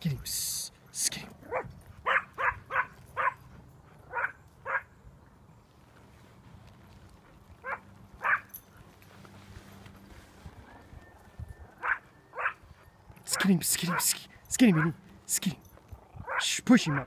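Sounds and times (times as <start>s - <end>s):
dog barking in sharp yaps: 1.5s - 3.4s.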